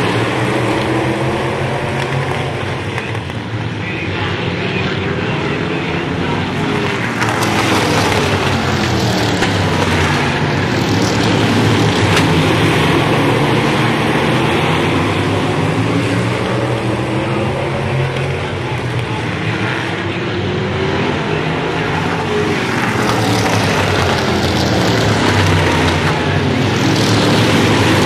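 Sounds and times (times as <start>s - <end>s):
race car engines passing: 0.0s - 28.0s.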